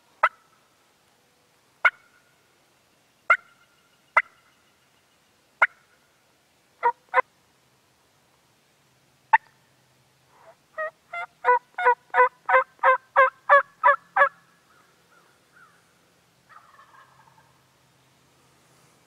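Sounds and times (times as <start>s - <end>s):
turkey yelping: 10.8s - 14.3s, 16.5s - 17.5s.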